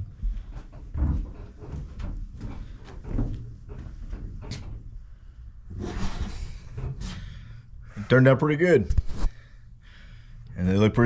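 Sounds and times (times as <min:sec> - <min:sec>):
scraping rustle: 0:05.7 - 0:07.3.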